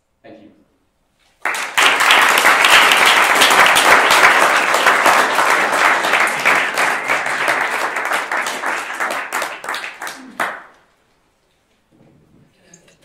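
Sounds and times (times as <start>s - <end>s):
audience applauding: 1.4s - 10.9s.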